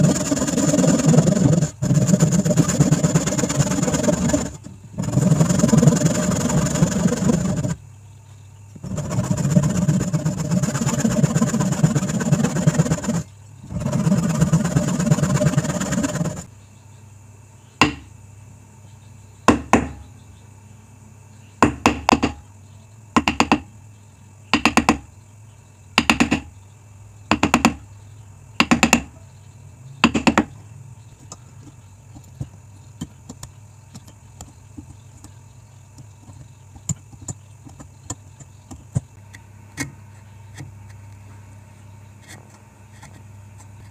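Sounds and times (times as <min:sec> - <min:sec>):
band saw cutting wood: 0:00.0 - 0:07.8, 0:08.8 - 0:16.5
chisel knocks: 0:17.8 - 0:18.1.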